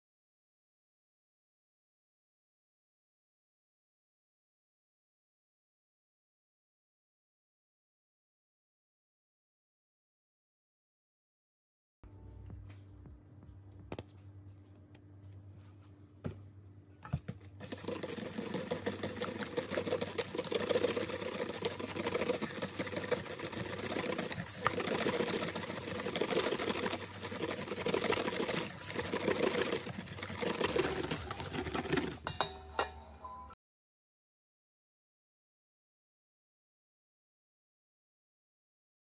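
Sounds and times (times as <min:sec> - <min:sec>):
wire whisk beating batter in steel bowl: 0:17.0 - 0:33.2.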